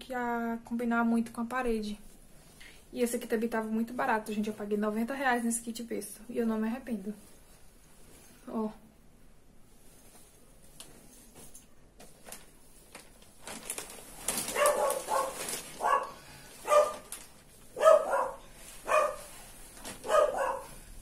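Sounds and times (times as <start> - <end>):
padded fabric rustling: 9.5 - 20.9
dog barking: 14.5 - 17.1, 17.8 - 19.3, 20.0 - 20.8.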